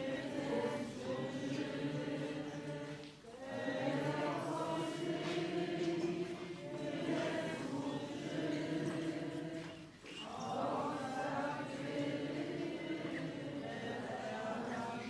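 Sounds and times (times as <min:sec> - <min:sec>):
voices singing a slow hymn: 0:00.0 - 0:15.0.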